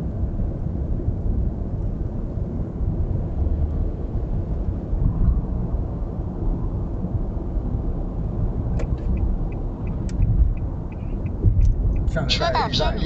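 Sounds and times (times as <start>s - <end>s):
car road rumble inside cabin: 0.0s - 13.0s
light ticks: 8.8s - 12.1s.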